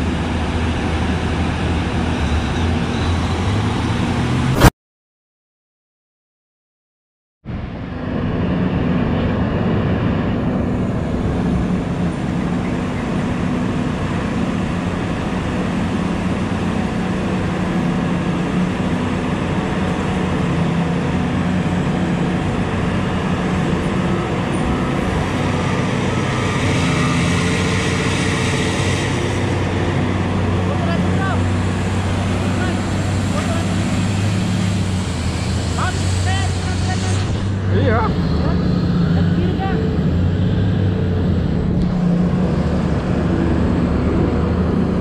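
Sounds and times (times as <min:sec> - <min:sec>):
excavator engine and hydraulic hum: 0:07.5 - 0:45.0.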